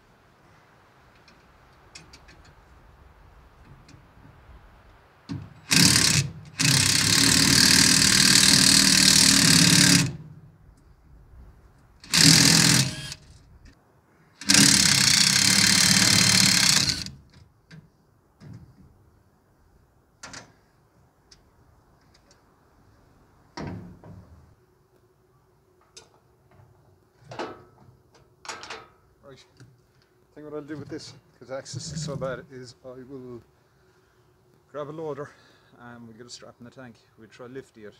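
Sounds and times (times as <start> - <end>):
impact driver hammering on bolts: 5.3 - 10.3, 12.1 - 13.2, 14.4 - 17.1.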